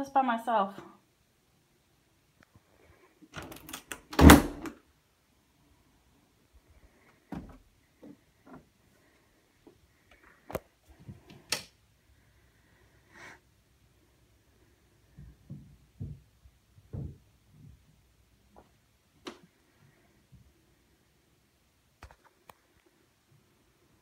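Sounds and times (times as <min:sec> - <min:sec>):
faint knocks and taps: 0:15.1 - 0:19.5.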